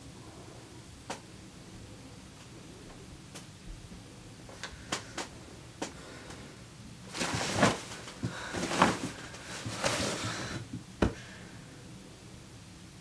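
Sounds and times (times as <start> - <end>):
bedclothes rustling: 7.0 - 10.8.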